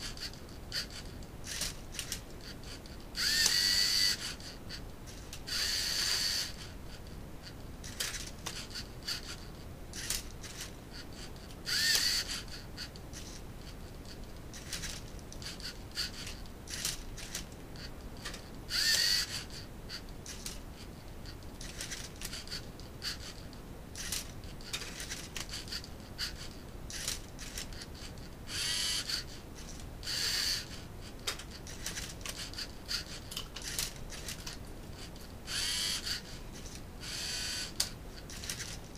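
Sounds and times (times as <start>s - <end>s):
servo motors whining: 3.2s - 6.7s, 10.0s - 13.4s, 14.6s - 20.5s, 24.0s - 29.4s, 30.0s - 30.8s, 35.5s - 38.8s.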